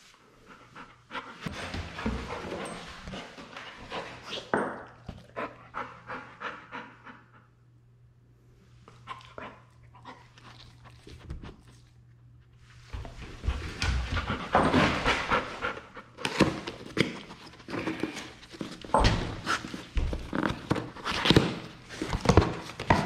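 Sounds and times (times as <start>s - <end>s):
dog panting and sniffing: 0.4s - 7.5s, 12.8s - 23.0s.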